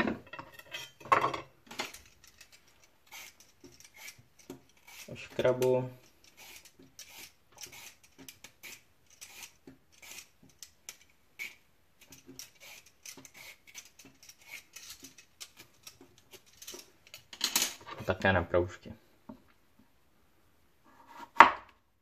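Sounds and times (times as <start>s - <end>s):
peeler scraping carrot: 1.9s - 17.2s.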